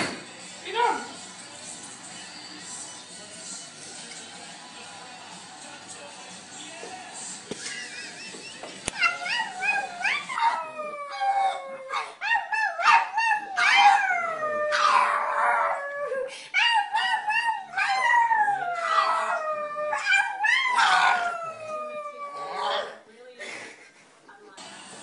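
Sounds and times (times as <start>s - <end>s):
dog howling: 9.0s - 23.0s.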